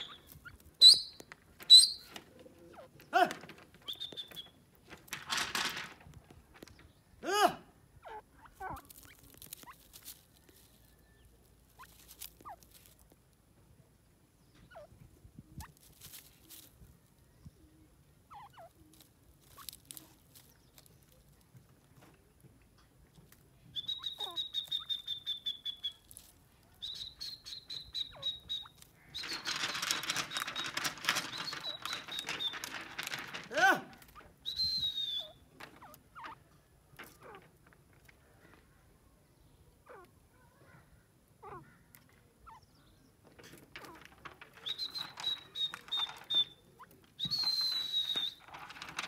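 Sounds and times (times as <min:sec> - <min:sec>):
light clicks and rustles: 0:00.0 - 0:07.0, 0:25.9 - 0:38.8, 0:43.2 - 0:49.0.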